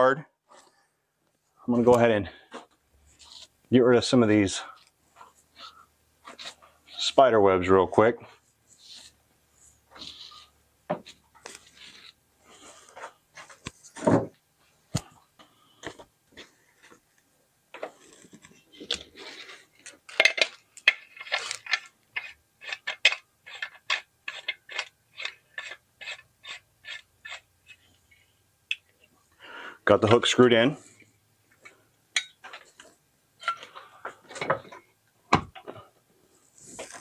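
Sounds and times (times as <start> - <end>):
metal hook screwing scrapes: 4.7 - 7.2, 19.2 - 28.0, 32.2 - 34.8
metal parts clinking and scraping: 20.1 - 27.4, 32.2 - 34.8.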